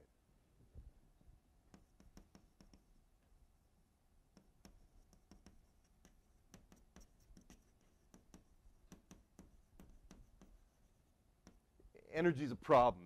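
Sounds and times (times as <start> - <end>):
quiet room hum: 0.0 - 13.0
pen writing scratches: 1.7 - 3.0, 4.3 - 11.7.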